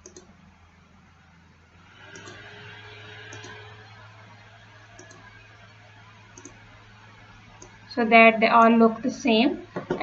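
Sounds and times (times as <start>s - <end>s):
computer mouse clicks: 0.0s - 0.3s, 2.0s - 3.7s, 5.0s - 5.4s, 6.3s - 6.6s, 7.6s - 7.8s
steady low hum: 0.0s - 10.0s.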